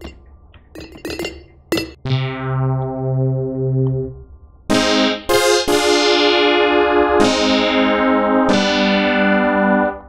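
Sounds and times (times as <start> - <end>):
synthesizer plucked notes: 0.0 - 10.0
synthesizer held chord: 2.0 - 10.0.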